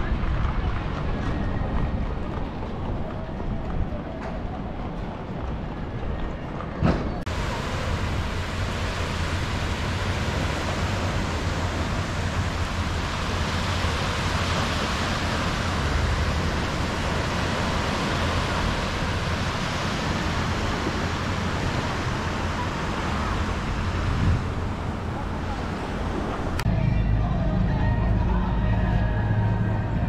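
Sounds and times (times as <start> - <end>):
waves breaking on shore: 7.3 - 26.7.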